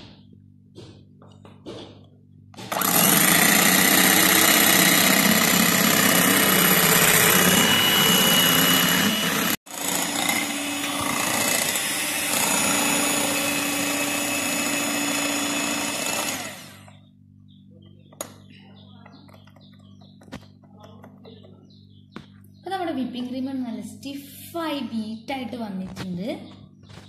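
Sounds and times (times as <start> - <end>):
electric hand mixer whirring: 2.6 - 17.0.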